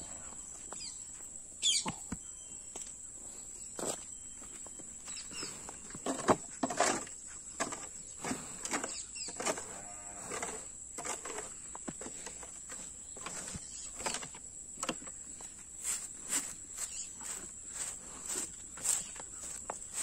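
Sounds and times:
shuffling footsteps: 0.0 - 7.0, 11.2 - 20.0
high insect drone: 7.0 - 20.0
broom sweeping floor: 15.4 - 20.0.

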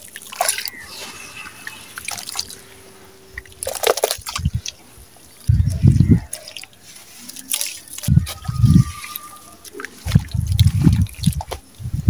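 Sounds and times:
hands squelching wet mud: 0.0 - 11.8
water dripping and splashing: 0.0 - 11.8
low rumble: 0.7 - 6.3, 10.1 - 12.0.

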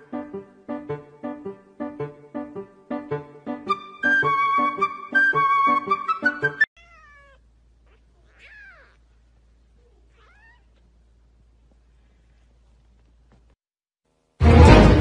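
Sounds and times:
cat meowing: 6.8 - 9.1, 9.8 - 10.8.

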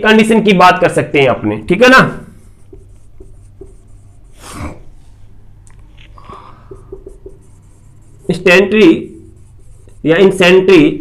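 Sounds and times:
marker writing on whiteboard: 2.3 - 5.0, 6.3 - 11.0
breathy noise: 6.0 - 7.1.

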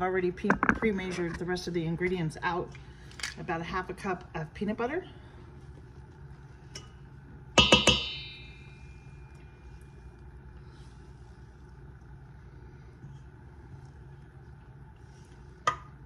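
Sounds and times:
low steady hum: 0.0 - 16.0
steel bowl knocked with utensil: 7.6 - 8.5.

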